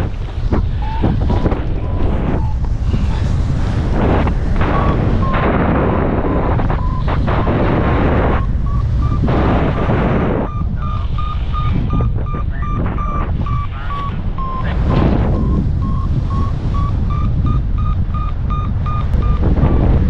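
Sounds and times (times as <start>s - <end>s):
wind buffeting microphone: 0.0s - 20.0s
variometer short beeps: 4.6s - 20.0s.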